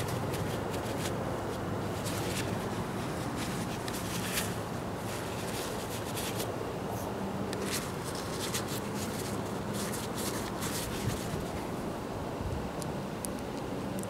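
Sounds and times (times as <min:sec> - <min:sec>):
towel rubbing a metal bolt: 0:01.9 - 0:06.5.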